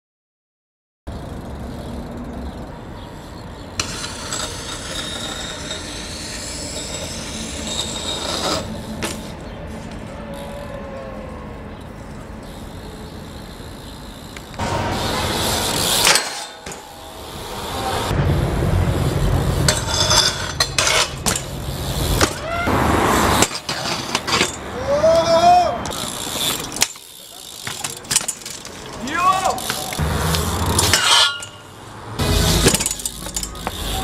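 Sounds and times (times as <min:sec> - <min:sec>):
bike tyres rumbling on concrete: 0:01.1 - 0:34.0
bike landing hard impact: 0:19.0 - 0:22.7, 0:25.9 - 0:31.6, 0:32.2 - 0:34.0
wheels knocking on ground: 0:32.2 - 0:34.0.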